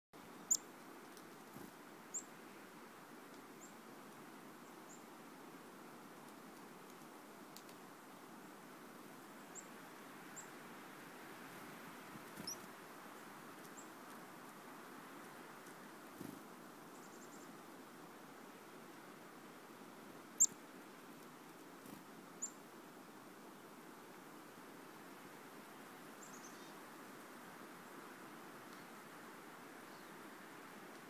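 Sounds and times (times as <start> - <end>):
faint background hiss: 0.2 - 31.0
chickadee calls: 12.4 - 12.6.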